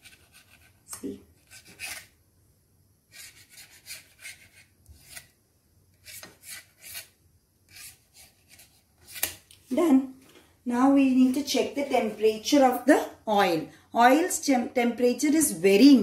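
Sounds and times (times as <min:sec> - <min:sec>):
knife scraping on metal plate: 0:03.1 - 0:05.3, 0:06.0 - 0:09.4.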